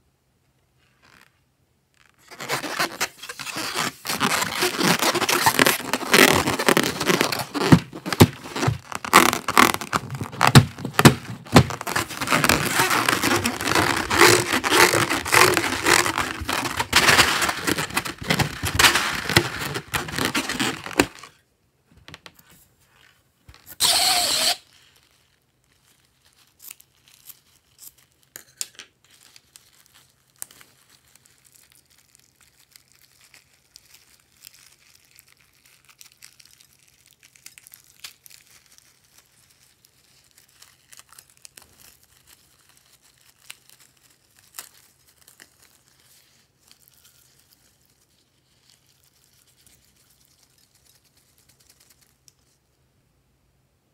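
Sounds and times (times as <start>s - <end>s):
balloon crinkling rustle: 0.8s - 28.4s, 29.0s - 52.6s
hands rubbing balloon: 2.2s - 21.3s.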